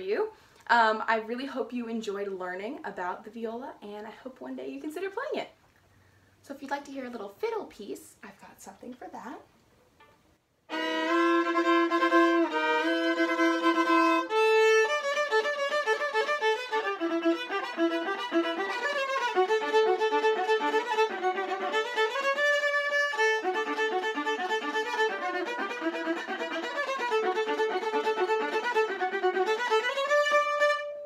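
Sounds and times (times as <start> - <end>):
solo bowed viola: 10.7 - 31.0.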